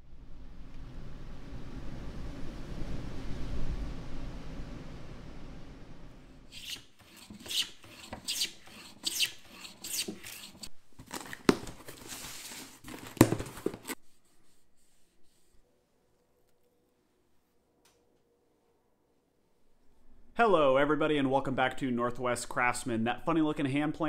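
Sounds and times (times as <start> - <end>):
plane cutting wood: 6.5 - 10.7
rag rubbing metal: 6.5 - 10.7.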